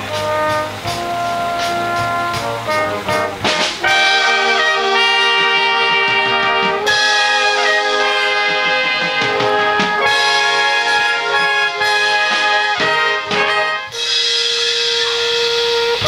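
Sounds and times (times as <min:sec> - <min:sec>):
brass band playing: 0:00.0 - 0:16.0.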